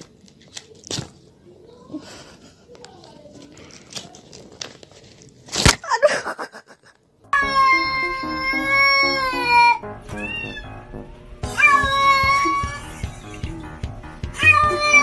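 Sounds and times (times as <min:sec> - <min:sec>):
background music: 0:07.1 - 0:15.0
cat yowling: 0:07.4 - 0:10.7, 0:11.5 - 0:13.0, 0:14.4 - 0:15.0.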